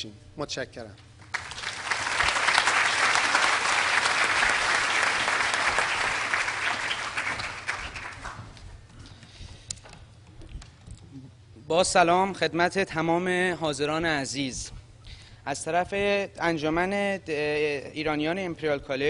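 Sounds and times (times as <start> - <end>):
audience applauding: 1.2 - 8.6.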